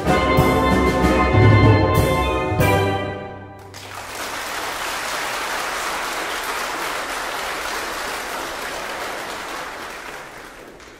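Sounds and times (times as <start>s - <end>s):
audience applauding: 3.6s - 10.9s.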